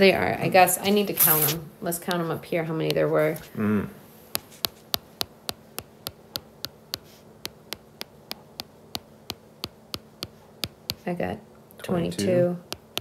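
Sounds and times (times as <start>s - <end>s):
stylus tapping on glass screen: 4.3s - 11.0s, 12.7s - 13.0s.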